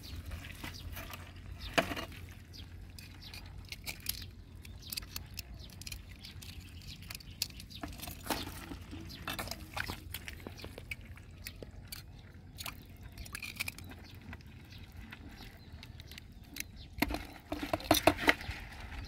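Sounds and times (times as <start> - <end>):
metal tongs and crabs clicking: 1.0 - 14.4, 15.6 - 18.5.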